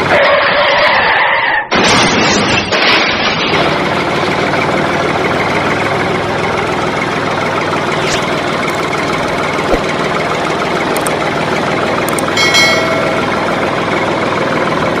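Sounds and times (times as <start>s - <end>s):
tractor engine idling: 3.6s - 15.0s.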